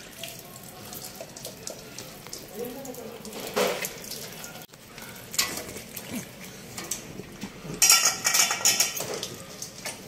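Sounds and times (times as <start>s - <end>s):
metal bowl clinking and scraping: 5.3s - 10.0s.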